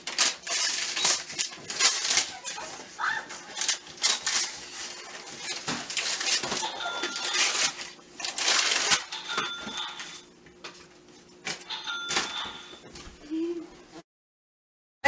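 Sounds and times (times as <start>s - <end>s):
wrapping paper tearing and rustling: 0.0s - 10.2s.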